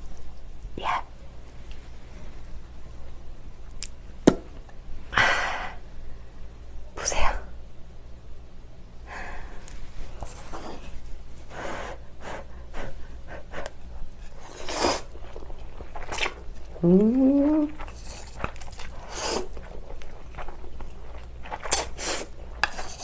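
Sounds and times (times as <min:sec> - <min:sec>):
person slurping noodles: 0:14.4 - 0:15.1, 0:19.0 - 0:19.6.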